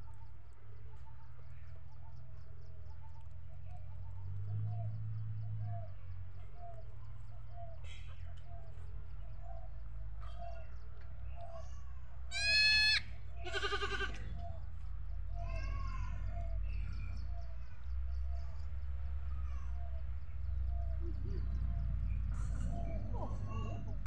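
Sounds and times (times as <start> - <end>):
goats bleating: 12.3 - 14.3.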